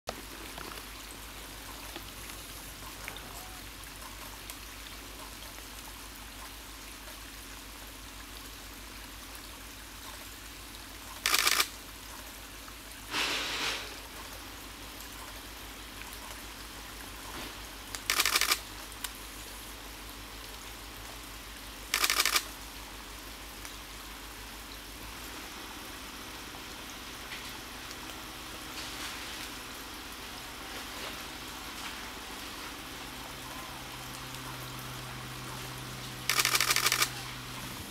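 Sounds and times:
water trickling over rocks: 0.1s - 37.9s
short loud noise bursts: 13.1s - 14.0s.

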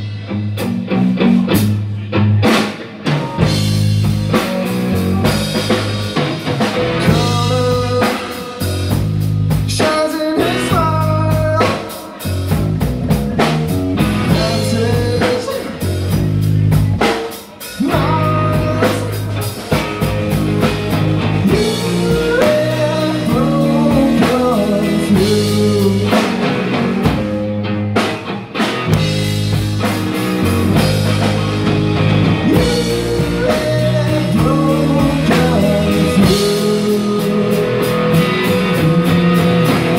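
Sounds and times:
bass guitar: 0.0s - 39.9s
drum kit: 0.0s - 39.9s
electric guitar: 0.0s - 39.9s
man singing lead vocal: 7.0s - 12.8s, 14.2s - 19.7s, 21.3s - 27.5s, 32.3s - 39.7s.

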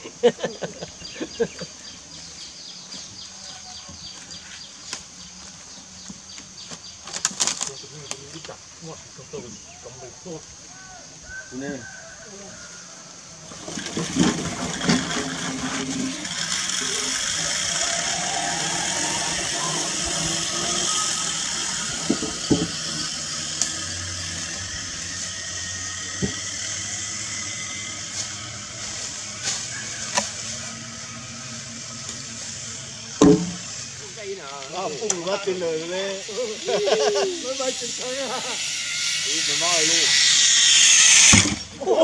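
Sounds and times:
pulley whirring along steel cable: 13.4s - 41.8s
sharp knocks: 33.2s - 33.6s.

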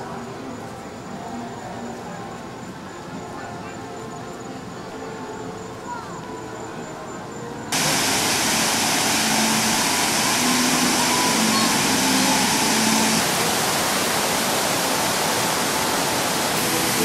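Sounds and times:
fountain water splashing: 7.7s - 17.0s.

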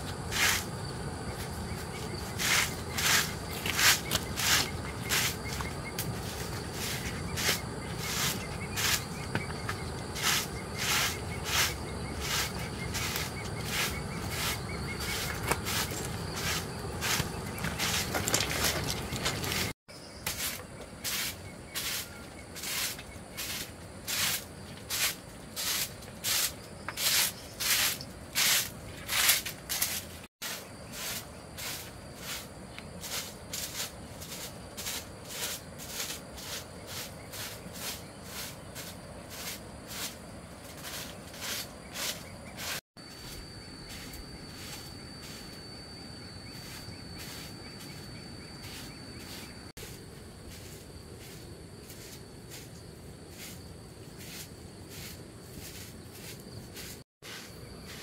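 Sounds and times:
insect high-pitched call: 0.0s - 58.0s
sharp strokes: 2.4s - 9.3s, 10.2s - 18.7s.

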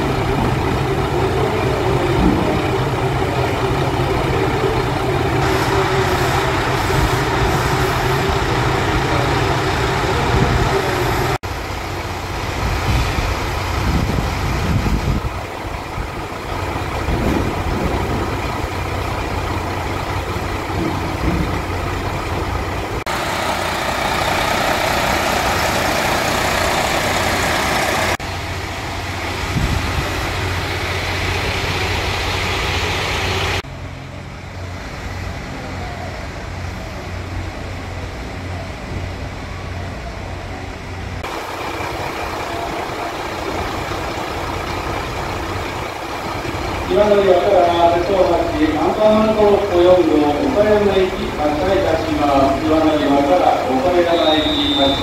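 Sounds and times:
hissing rush: 0.0s - 33.6s
diesel railcar idling: 0.0s - 55.0s.

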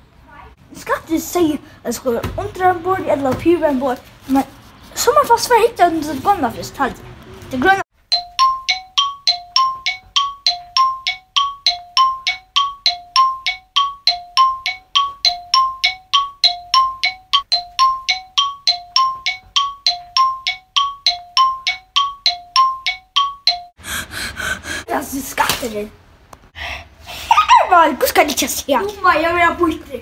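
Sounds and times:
bell-like chime pattern: 8.1s - 23.8s.

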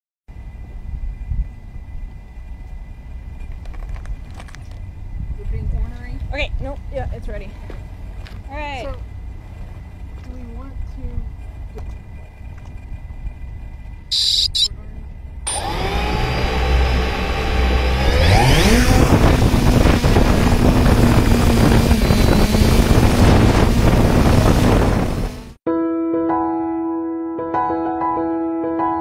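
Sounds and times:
drone motors whining: 8.6s - 14.7s, 15.5s - 25.6s
short high beep: 14.1s - 14.7s, 15.5s - 15.7s.

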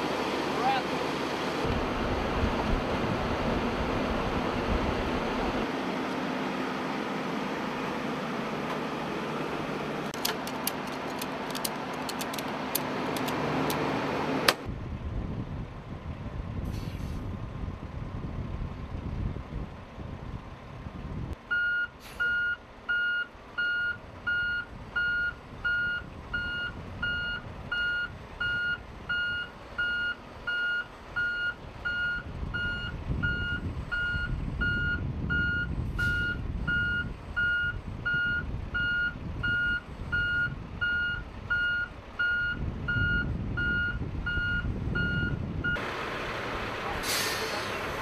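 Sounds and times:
diesel engine running: 0.0s - 48.0s
truck backup alarm beeping: 21.5s - 45.9s.

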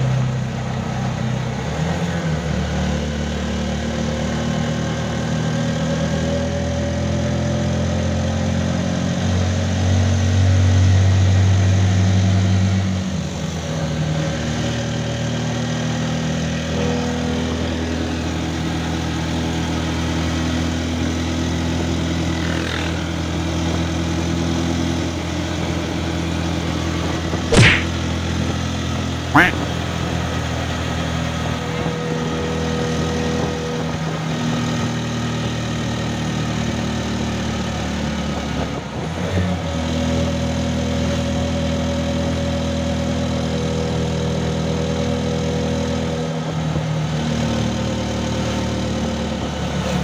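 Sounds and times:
sharp knock: 27.5s - 27.9s.

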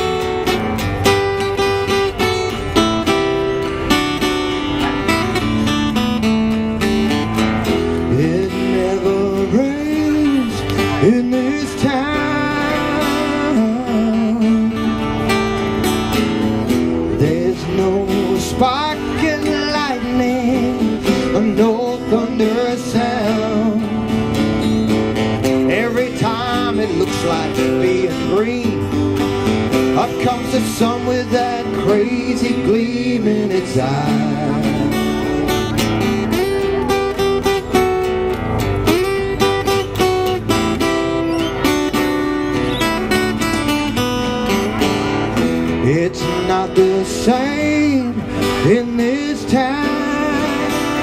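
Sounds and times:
acoustic guitars strumming chords: 0.0s - 51.0s
wavering lead melody: 35.0s - 45.5s.

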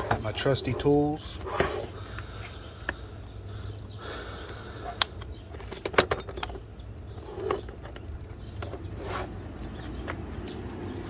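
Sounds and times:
plastic tool case rattling: 5.4s - 8.9s.

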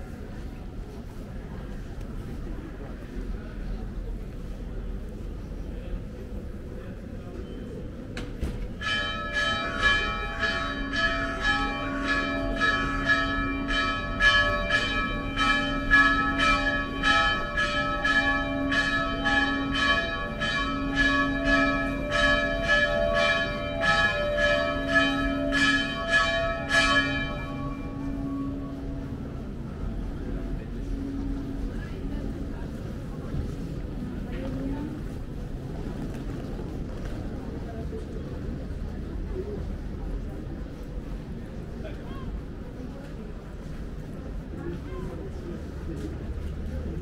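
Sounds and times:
church bell ringing: 8.8s - 32.5s.

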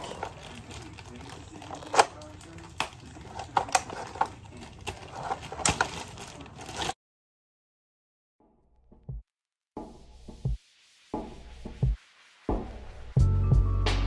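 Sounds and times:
plastic toy parts clicking: 0.0s - 6.9s.

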